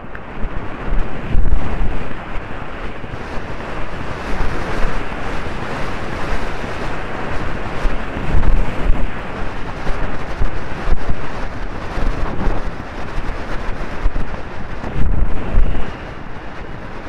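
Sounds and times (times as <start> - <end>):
wind buffeting microphone: 0.0 - 17.0
heavy low rumbles: 8.0 - 13.2.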